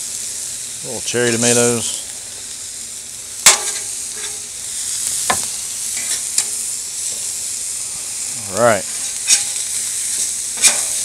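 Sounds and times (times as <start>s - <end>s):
steaks sizzling on griddle: 0.0s - 11.0s
metal spatula clacking on griddle: 3.4s - 4.4s, 10.6s - 11.0s.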